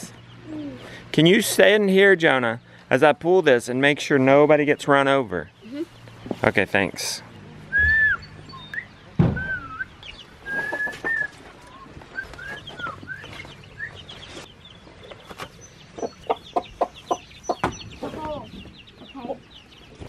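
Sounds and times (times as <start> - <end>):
chicks peeping: 4.0 - 20.0
hen clucking: 10.0 - 19.7.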